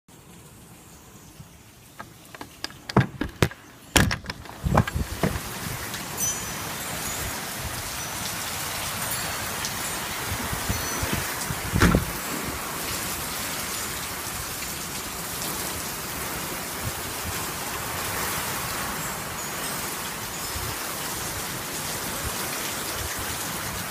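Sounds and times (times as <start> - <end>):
heavy rain pouring: 0.1 - 23.9
sharp knocks and clicks: 2.0 - 5.5
loud thump: 11.8 - 12.1.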